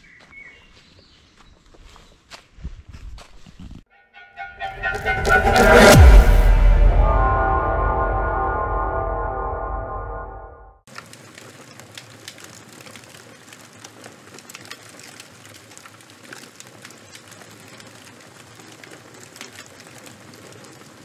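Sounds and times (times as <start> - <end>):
fire crackling and popping: 10.9 - 21.0.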